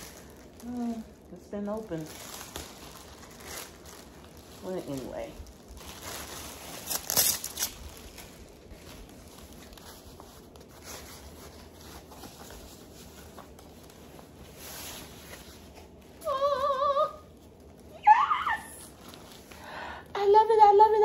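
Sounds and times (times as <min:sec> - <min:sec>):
plastic and paper rustling: 0:00.0 - 0:21.0
person humming: 0:16.2 - 0:17.2.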